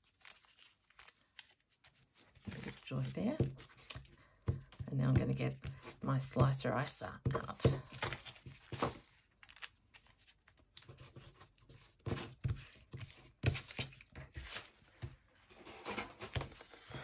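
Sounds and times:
paper rustling and crinkling: 0.0 - 4.8, 7.5 - 17.0.

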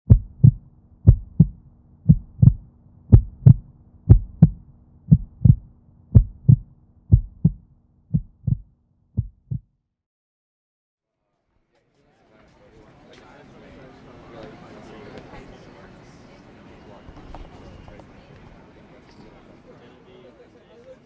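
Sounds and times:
heartbeat thumps: 0.0 - 9.7
faint steady hum: 0.1 - 8.6.

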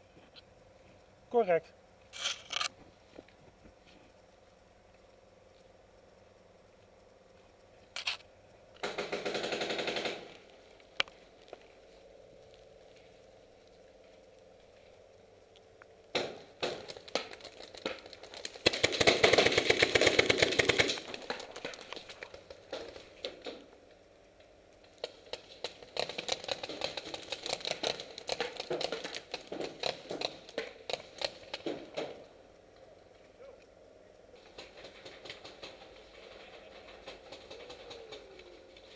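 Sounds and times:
paintball markers rapid fire: 8.8 - 10.5, 16.1 - 23.6, 25.0 - 32.2.

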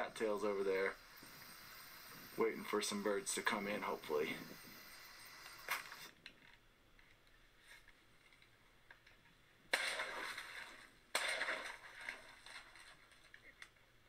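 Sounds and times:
shotgun shots: 9.7 - 12.6.

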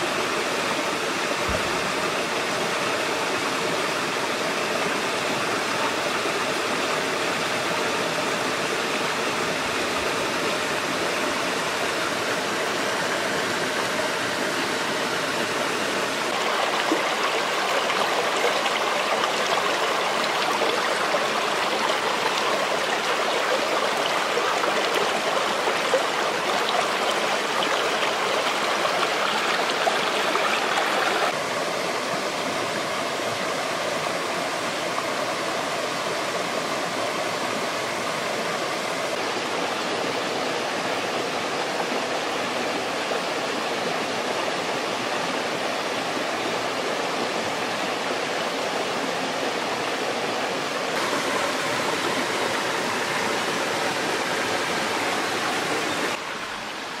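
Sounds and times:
stream splashing over stones: 15.9 - 31.4, 46.7 - 57.0.

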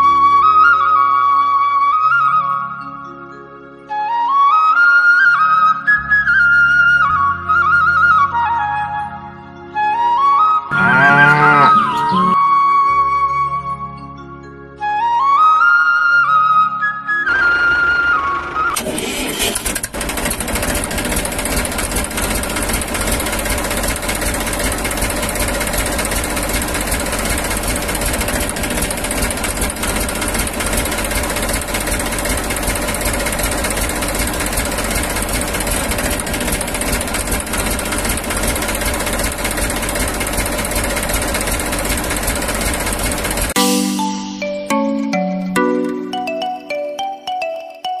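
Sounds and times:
tractor engine chugging: 18.9 - 43.6.

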